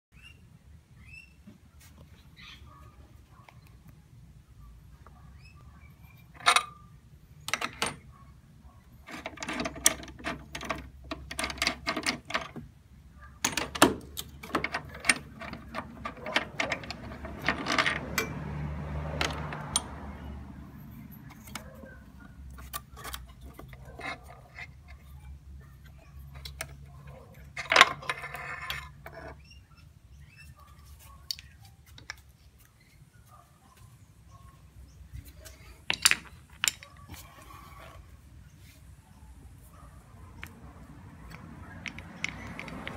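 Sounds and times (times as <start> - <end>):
metal clatter: 9.0 - 12.6, 13.4 - 20.3.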